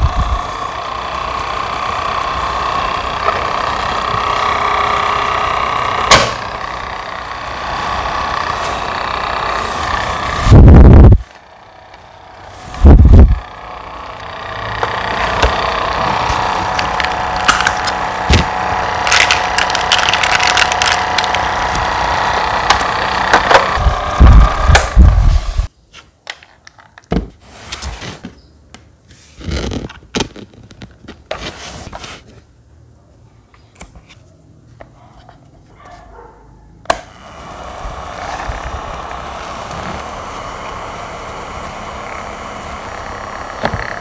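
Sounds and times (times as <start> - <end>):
desk fan whining: 0.0 - 25.7, 36.8 - 44.0.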